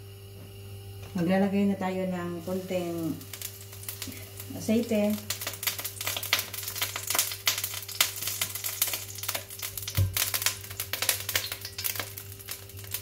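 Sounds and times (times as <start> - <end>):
steady low hum: 0.0 - 13.0
oil crackling in a frying pan: 2.3 - 13.0.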